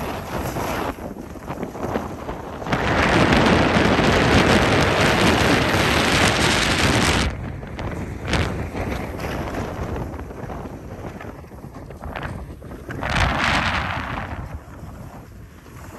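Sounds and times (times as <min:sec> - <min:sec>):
ski edges scraping snow: 0:00.0 - 0:02.2
wind on microphone: 0:00.0 - 0:15.9.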